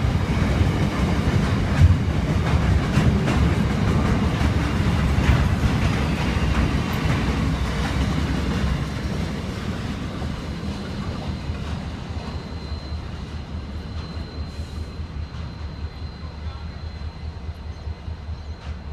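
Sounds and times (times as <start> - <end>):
freight train wagons rolling past: 0.0 - 18.9
faint thin high whine: 12.2 - 17.8.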